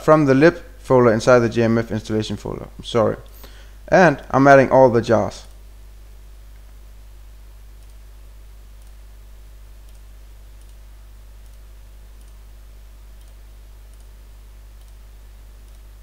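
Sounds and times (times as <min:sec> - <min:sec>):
low electrical hum: 0:00.0 - 0:16.0
computer mouse clicks: 0:07.8 - 0:08.0, 0:09.8 - 0:10.8, 0:11.4 - 0:12.4, 0:13.2 - 0:14.2, 0:14.8 - 0:15.0, 0:15.6 - 0:15.9.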